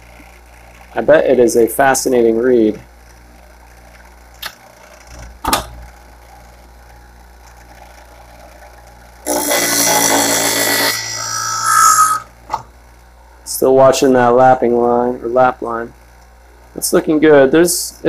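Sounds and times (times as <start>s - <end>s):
blade grinding against wheel: 9.3s - 12.3s
sharpener motor humming: 9.3s - 12.3s.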